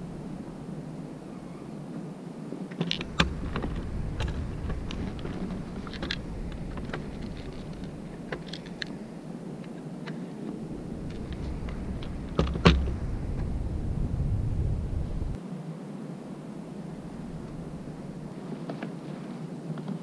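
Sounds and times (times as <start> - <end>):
low background rumble: 0.0 - 1.9, 2.9 - 15.4, 16.5 - 18.5.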